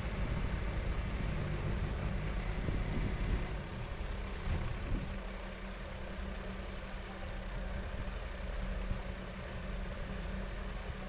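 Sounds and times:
low mechanical rumble: 0.0 - 11.0
faint ticks: 0.3 - 0.8, 1.6 - 2.2, 5.6 - 6.1, 7.2 - 9.9.

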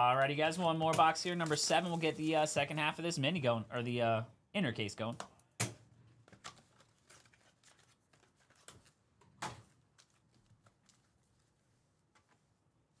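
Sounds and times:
card packs rustling and tapping: 0.1 - 2.5, 6.2 - 11.2.

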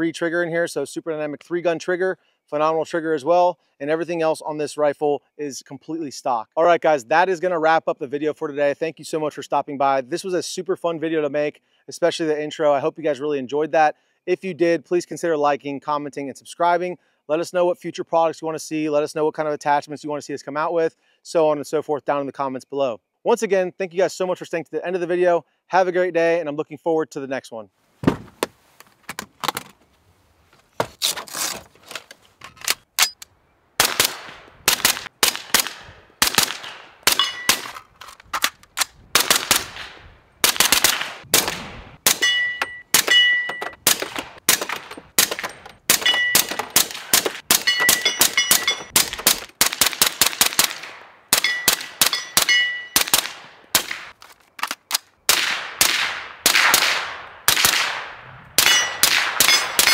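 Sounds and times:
suppressed rifle shots: 33.8 - 37.8, 39.2 - 54.1, 55.3 - 59.9
short metallic ring: 37.2 - 37.6, 42.2 - 43.8, 46.0 - 46.6, 47.6 - 48.9, 51.4 - 53.0, 58.6 - 59.9.

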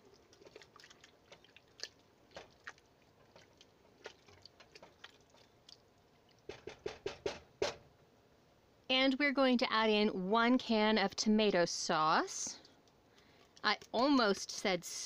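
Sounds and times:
wet squelching of stirring: 0.0 - 6.7.

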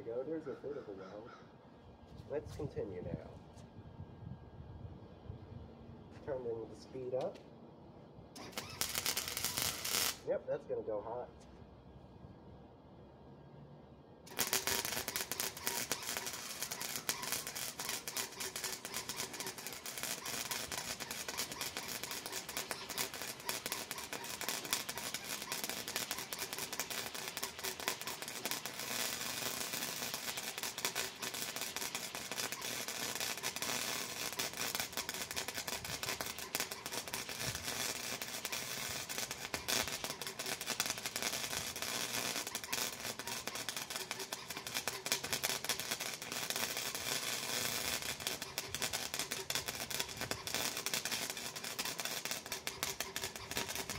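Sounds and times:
welder arc crackling: 8.4 - 10.3, 14.3 - 53.9.

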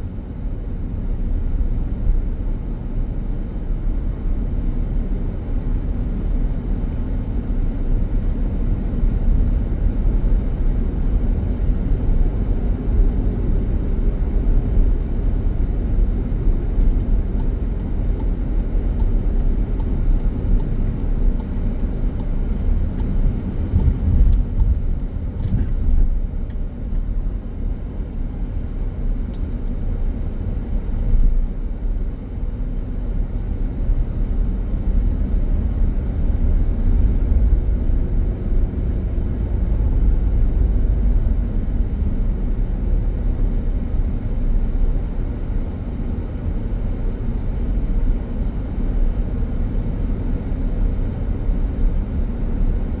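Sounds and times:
car engine and tyre rumble: 0.0 - 53.0.

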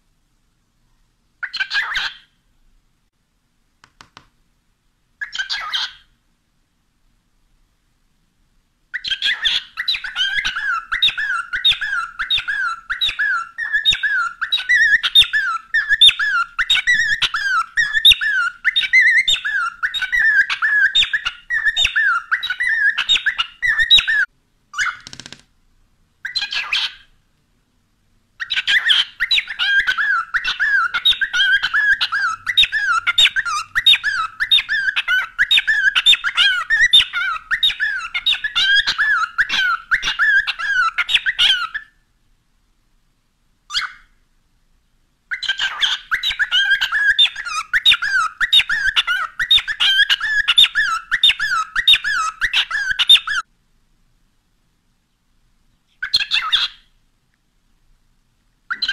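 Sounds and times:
cockatiel chirping: 1.4 - 2.4, 5.2 - 6.1, 8.9 - 25.4, 26.2 - 27.1, 28.4 - 42.0, 43.7 - 44.2, 45.3 - 53.5, 55.9 - 56.9, 58.7 - 58.9.

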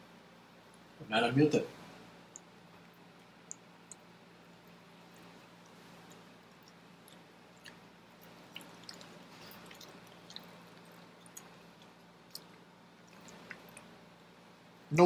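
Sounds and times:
low room hum: 0.0 - 15.0
soft sharp clicks: 2.3 - 2.5
wet chewing and lip-smacking: 2.3 - 14.2.

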